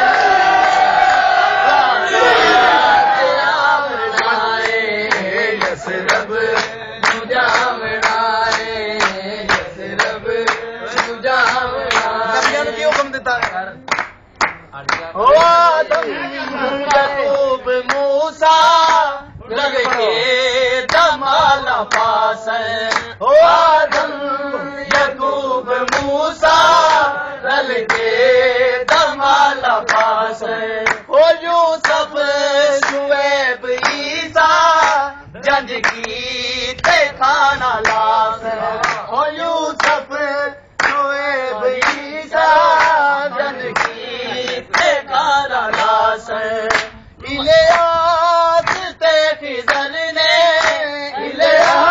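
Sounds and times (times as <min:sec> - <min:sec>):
men singing: 0:00.0 - 0:51.9
hand clapping: 0:04.1 - 0:16.1, 0:16.9 - 0:18.1, 0:18.8 - 0:19.1, 0:19.8 - 0:20.1, 0:20.8 - 0:21.2, 0:21.8 - 0:22.2, 0:22.8 - 0:23.2, 0:23.8 - 0:24.2, 0:24.8 - 0:25.2, 0:25.8 - 0:27.1, 0:27.8 - 0:28.2, 0:28.8 - 0:29.2, 0:29.8 - 0:31.1, 0:31.7 - 0:38.2, 0:38.8 - 0:39.1, 0:39.7 - 0:40.2, 0:40.8 - 0:51.9.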